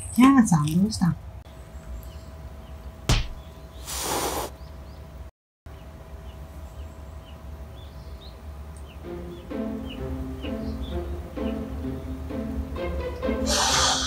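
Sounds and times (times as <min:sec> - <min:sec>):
small birds chirping: 0:00.2 - 0:14.0
sharp knock: 0:03.1 - 0:03.4
cat hissing: 0:03.8 - 0:04.6, 0:13.5 - 0:14.0
music: 0:08.8 - 0:14.0.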